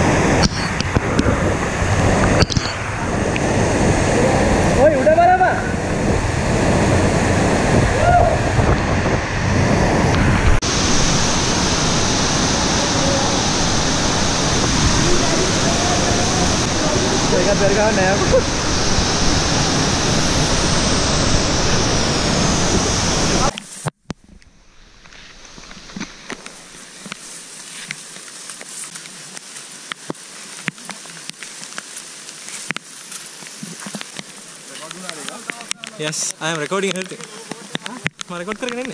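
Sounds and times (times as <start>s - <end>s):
waterfall roar up close: 0.0s - 23.5s
falling splashing water: 10.2s - 38.9s
rain pattering on foliage: 12.0s - 18.7s, 25.0s - 38.9s.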